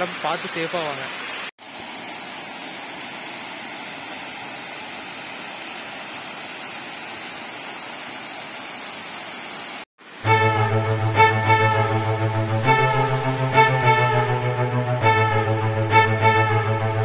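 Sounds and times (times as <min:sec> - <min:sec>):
waterfall pouring over rock: 0:00.0 - 0:10.3.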